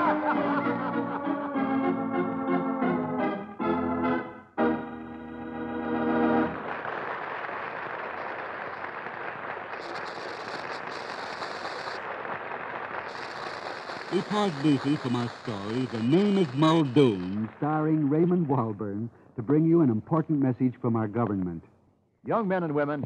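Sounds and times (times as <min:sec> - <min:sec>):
organ playing held chords: 0:00.0 - 0:06.6.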